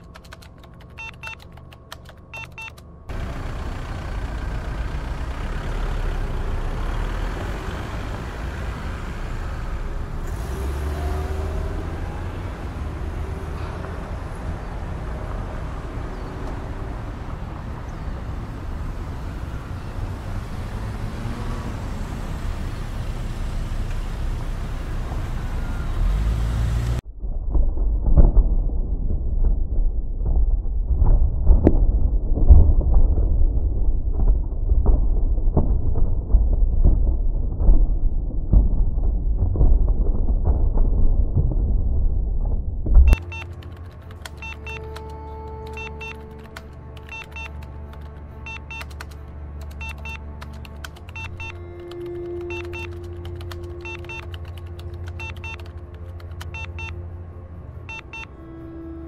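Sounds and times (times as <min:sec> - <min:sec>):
keyboard typing: 0:00.0 - 0:03.0, 0:43.1 - 0:57.0
street traffic din: 0:00.0 - 0:27.0, 0:42.9 - 0:59.0
deep rumble: 0:03.0 - 0:59.0.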